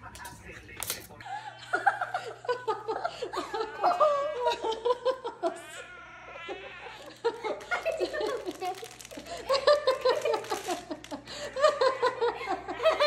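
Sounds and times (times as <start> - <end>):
person giggling: 7.0 - 13.0.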